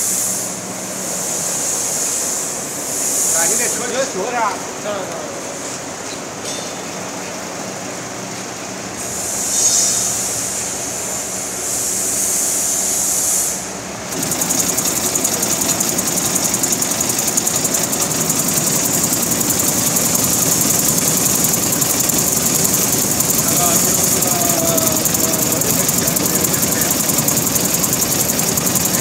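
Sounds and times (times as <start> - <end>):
fast even rattle: 14.0 - 29.0
motor hum: 14.0 - 29.0.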